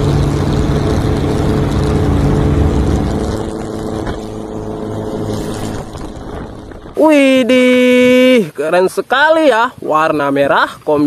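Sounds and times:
car engine running: 0.0 - 7.7
road noise: 0.0 - 8.3
wind noise: 0.0 - 11.0.

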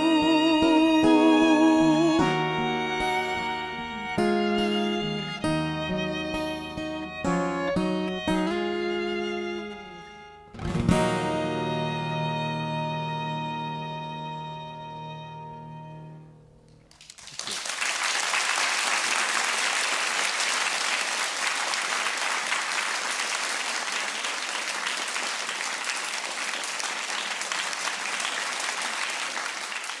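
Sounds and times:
audience applauding: 16.8 - 30.0.

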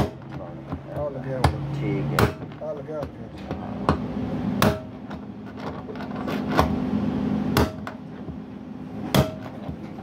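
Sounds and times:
steady low hum: 0.0 - 10.0
hammer striking metal drift: 4.6 - 4.9, 7.5 - 8.0, 9.1 - 9.5.

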